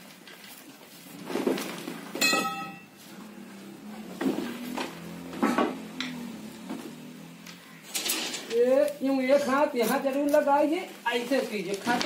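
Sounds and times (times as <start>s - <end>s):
metallic clang: 2.2s - 3.0s.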